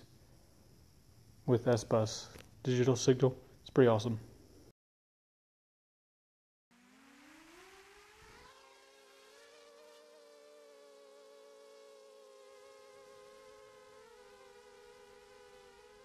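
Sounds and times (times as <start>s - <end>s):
drone motors whining: 6.8s - 16.0s.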